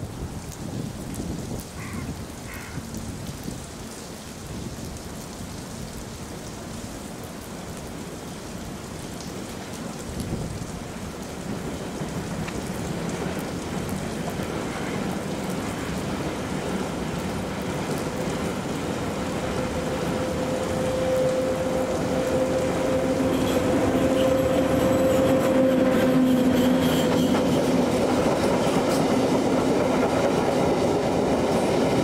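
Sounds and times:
steady rain falling: 0:00.0 - 0:32.0
freight train rumbling: 0:10.2 - 0:32.0
train whine: 0:11.5 - 0:32.0.

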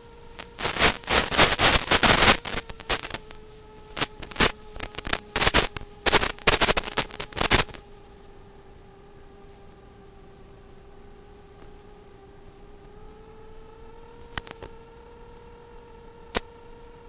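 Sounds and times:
crackling radio static: 0:00.0 - 0:17.0
faint electronic whine: 0:00.0 - 0:17.0.

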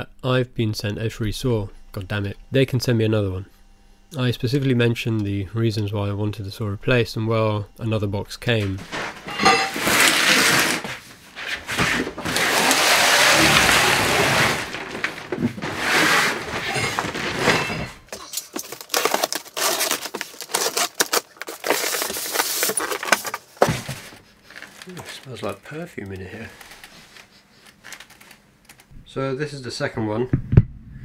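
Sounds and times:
packing crackling and clicking: 0:08.7 - 0:28.9
cardboard box scraping and rustling: 0:08.8 - 0:17.9.

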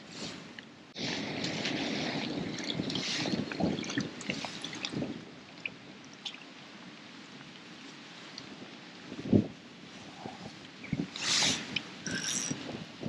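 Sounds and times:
water splashing and dripping: 0:01.0 - 0:06.6.

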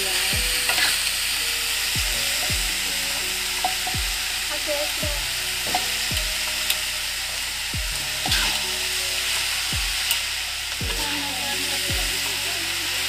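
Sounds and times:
leaves sizzling in a wok: 0:00.0 - 0:13.0
music with deep drum beat: 0:00.0 - 0:13.0.

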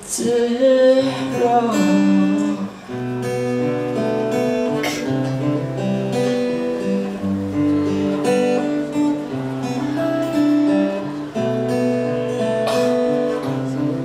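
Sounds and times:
acoustic guitar chords: 0:00.0 - 0:14.0.

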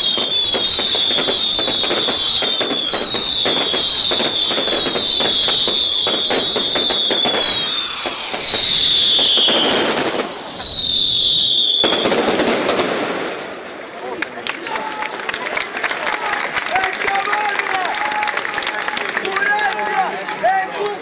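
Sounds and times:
shrill falling whistles: 0:00.0 - 0:12.1
fireworks cracks and bangs: 0:00.0 - 0:14.3.

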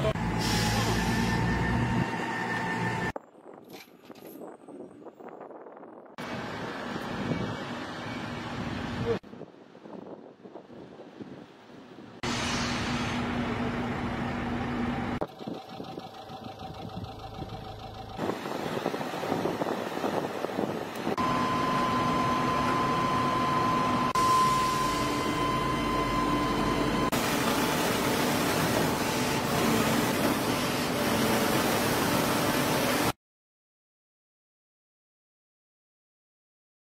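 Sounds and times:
construction machinery engines: 0:00.0 - 0:03.2, 0:06.2 - 0:09.2, 0:10.9 - 0:33.2
steady high whine: 0:21.2 - 0:33.0.

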